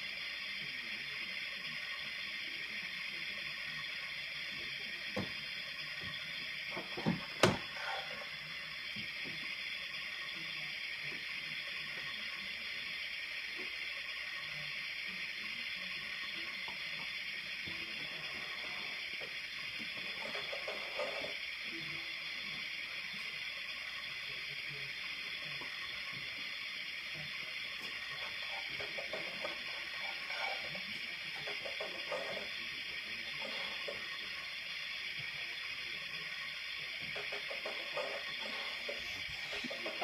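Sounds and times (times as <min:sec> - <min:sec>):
steady hiss: 0:00.0 - 0:40.0.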